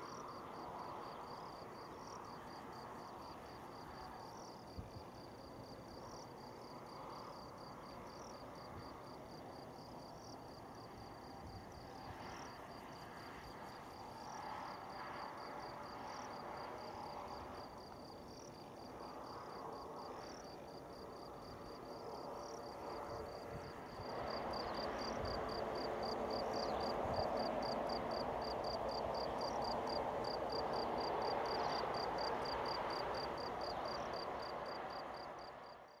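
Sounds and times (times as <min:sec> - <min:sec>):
distant jet engines: 0:00.0 - 0:35.9
crickets chirping: 0:00.0 - 0:36.0.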